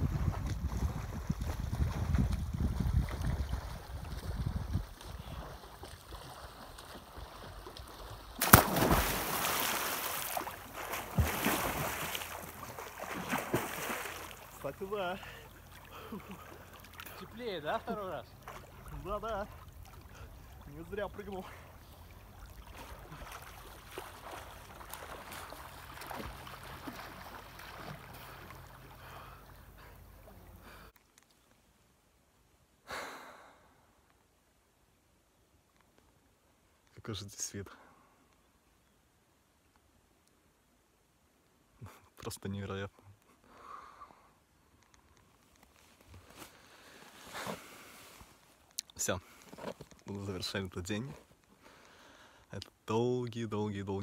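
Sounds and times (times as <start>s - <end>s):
wind rumbling on microphone: 0.0s - 6.2s
water lapping: 0.0s - 31.0s
light wind: 0.0s - 54.0s
swimming splashes: 0.2s - 30.9s
loud splash into water: 8.4s - 14.2s.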